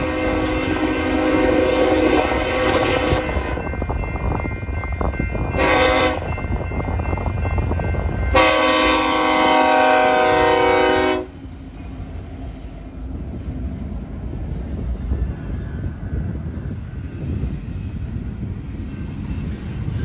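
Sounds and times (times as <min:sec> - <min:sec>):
train horn blasts: 0:00.0 - 0:03.7, 0:05.5 - 0:06.4, 0:08.2 - 0:11.4
diesel locomotive and wheels rumbling: 0:00.0 - 0:20.0.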